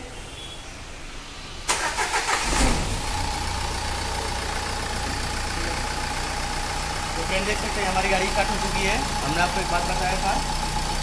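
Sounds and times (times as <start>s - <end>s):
diesel engine idling: 0.1s - 11.0s
starter cranking engine: 1.7s - 3.1s.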